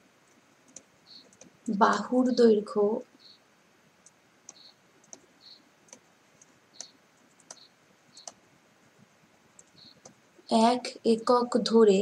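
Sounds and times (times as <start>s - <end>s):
stylus tapping on tablet screen: 5.9s - 8.4s, 9.6s - 10.2s.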